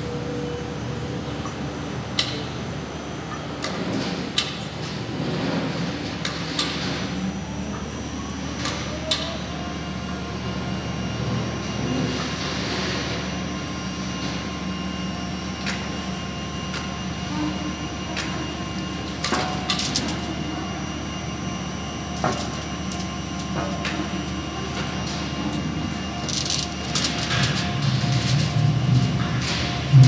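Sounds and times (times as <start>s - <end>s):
overhead crane humming: 0.0s - 30.0s.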